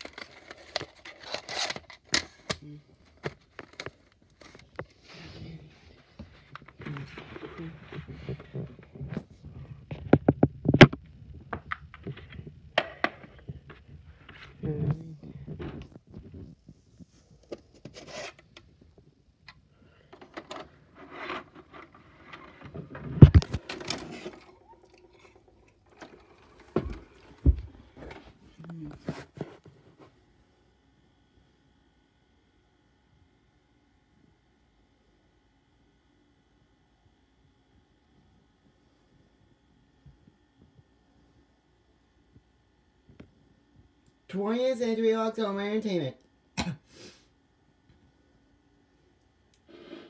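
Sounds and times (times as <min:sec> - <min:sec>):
handling clicks and scrapes: 0:00.0 - 0:02.6, 0:17.4 - 0:18.7, 0:20.2 - 0:24.4.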